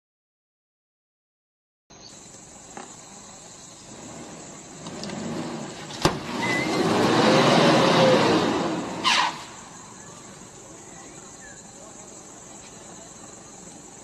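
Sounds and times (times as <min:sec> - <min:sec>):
vehicle engine revving: 0:03.8 - 0:10.5.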